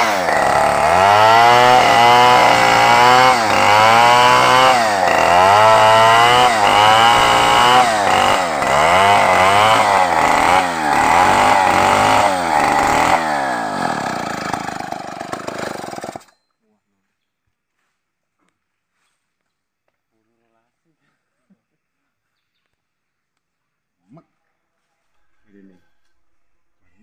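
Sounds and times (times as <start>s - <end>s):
chainsaw cutting wood: 0.0s - 16.4s.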